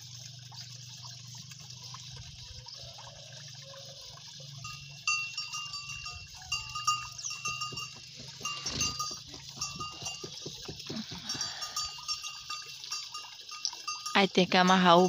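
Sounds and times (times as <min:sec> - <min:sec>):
cows and calves: 0:00.4 - 0:15.0
cattle bell clinking: 0:04.5 - 0:15.0.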